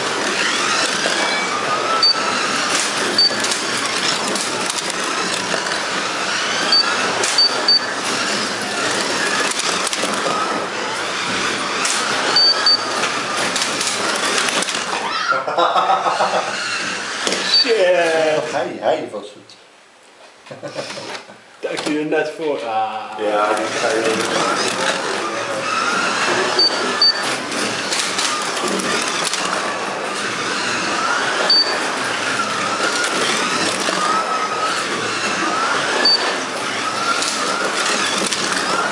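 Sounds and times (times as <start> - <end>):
cars rattling in slots: 0.0 - 15.0, 23.2 - 38.9
slot car motors whining: 0.0 - 18.8, 23.1 - 38.9
short high electronic beeps: 2.0 - 2.3, 6.7 - 7.9, 12.4 - 12.9, 26.6 - 27.2, 31.5 - 31.8
short high beeps: 6.7 - 7.9.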